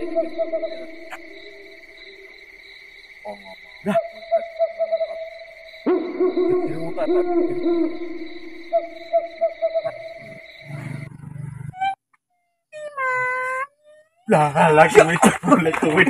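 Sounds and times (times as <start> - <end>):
owl hooting: 0.0 - 2.6, 3.3 - 12.0.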